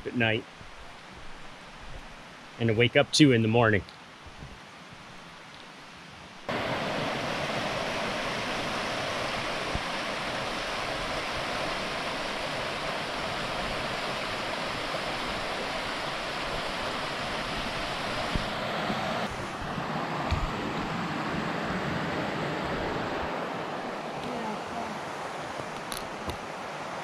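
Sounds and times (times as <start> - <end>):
river rapids rushing over rocks: 6.4 - 27.0.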